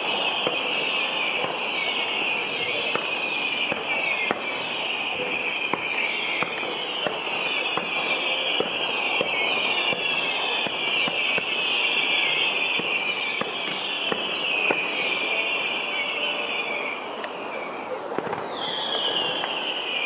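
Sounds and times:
distant fireworks popping: 0.0 - 20.0
insects chirping: 0.0 - 20.0.

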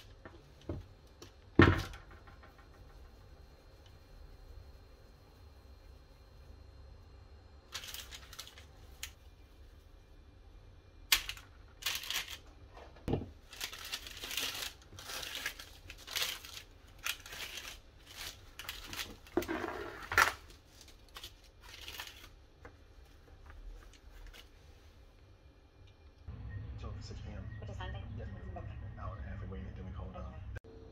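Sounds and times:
baking paper crinkling: 7.7 - 9.8, 11.1 - 25.2
kitchen towel rustling: 12.7 - 25.2.

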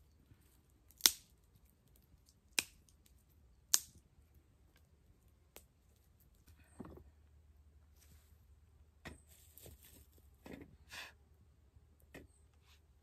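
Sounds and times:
wood fire crackling: 0.9 - 4.0.

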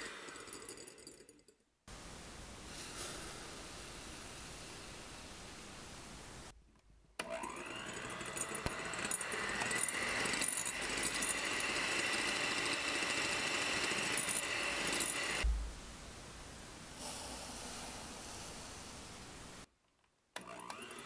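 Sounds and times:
electric hand mixer whine: 7.2 - 15.5, 20.4 - 21.0.

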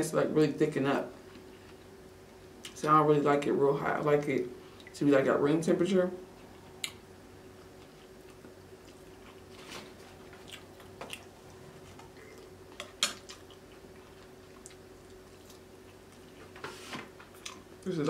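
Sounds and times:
faint steady hum: 0.0 - 18.0
wet chewing and biting sounds: 10.1 - 16.4.

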